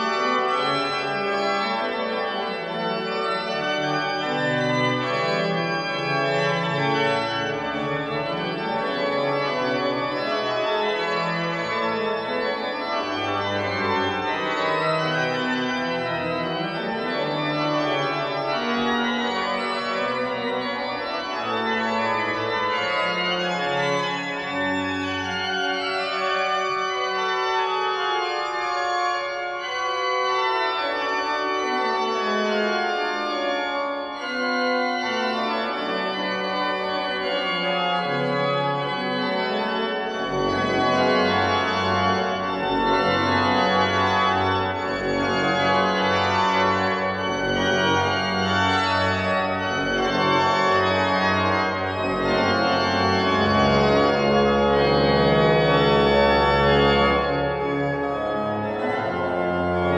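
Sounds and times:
pipe organ playing: 0:00.0 - 0:59.9
deep organ pedal bass: 0:37.3 - 0:59.9.

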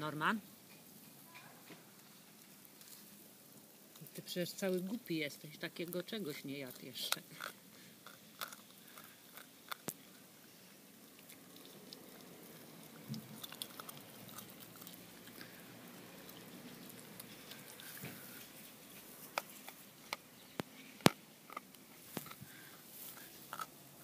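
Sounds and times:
dog gnawing and crunching bone: 0:06.4 - 0:10.3, 0:11.0 - 0:22.5, 0:23.1 - 0:24.0.

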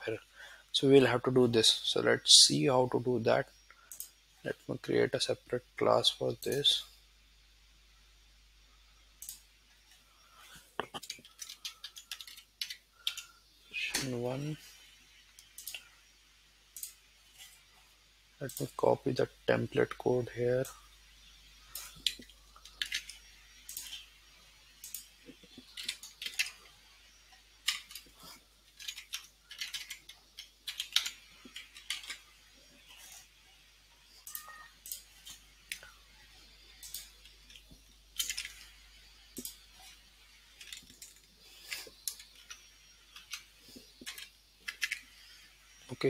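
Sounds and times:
typing on computer keyboard: 0:11.0 - 0:13.2.

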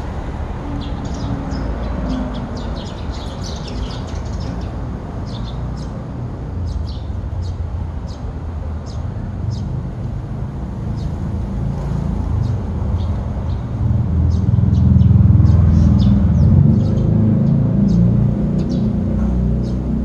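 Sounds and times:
sparrows chirping: 0:00.7 - 0:20.0.

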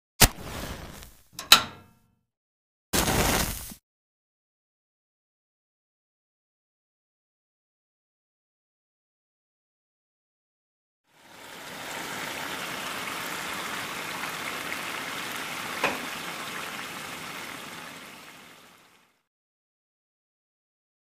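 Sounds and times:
food sizzling in frying pan: 0:11.1 - 0:19.1.

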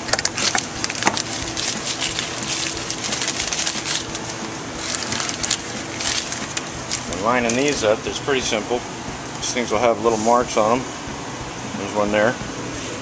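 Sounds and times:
paper packaging crinkling: 0:00.0 - 0:08.0
steady low hum: 0:00.0 - 0:13.0.

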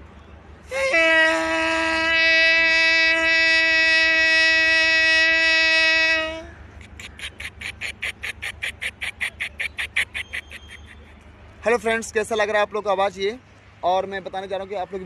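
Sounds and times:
man imitating train horn: 0:00.7 - 0:06.5
man imitating train wheels: 0:00.7 - 0:10.8.

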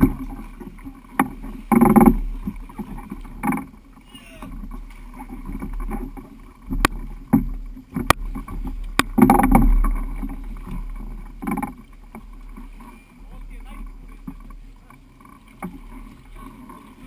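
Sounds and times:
knocks and clatter of people moving: 0:00.0 - 0:03.8, 0:04.5 - 0:12.9.

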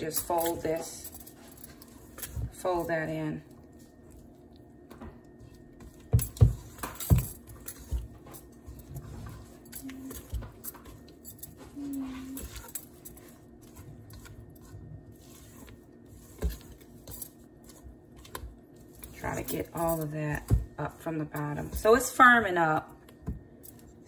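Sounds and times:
batter squishing: 0:10.9 - 0:19.3.

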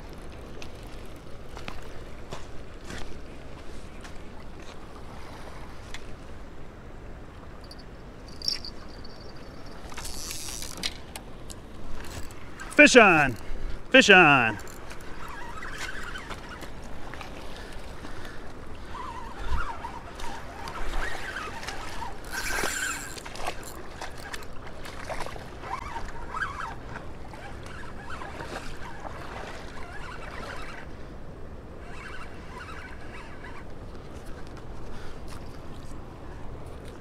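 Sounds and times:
fishing reel clicks and scratches: 0:07.7 - 0:11.2, 0:14.5 - 0:16.7, 0:20.6 - 0:24.4, 0:31.9 - 0:33.7.

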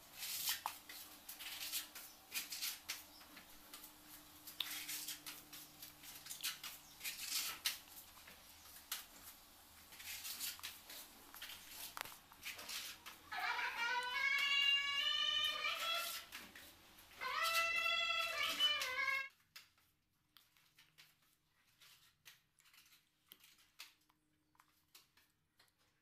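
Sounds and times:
putty blade scraping ceiling: 0:00.1 - 0:03.1, 0:04.5 - 0:07.9, 0:09.9 - 0:19.3.

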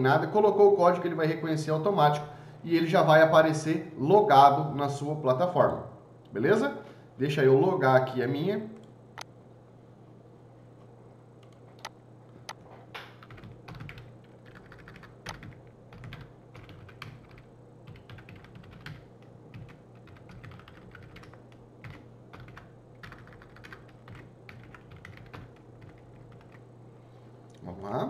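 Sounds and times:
steady low hum: 0:00.0 - 0:28.0
keyboard typing: 0:13.0 - 0:26.6.

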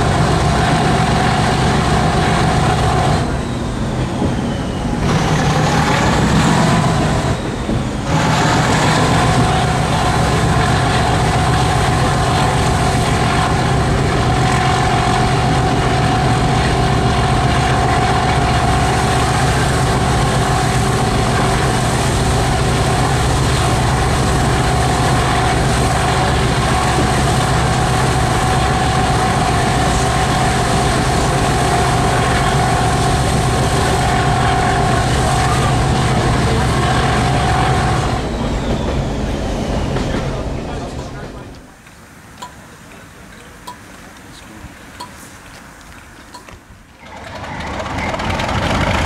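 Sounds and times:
diesel locomotive engine drone: 0:00.0 - 0:49.0
steady high whistle: 0:03.2 - 0:05.4.

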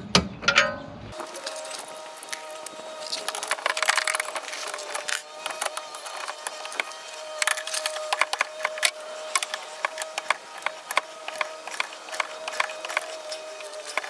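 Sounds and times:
metal tools clinking: 0:01.2 - 0:14.0.

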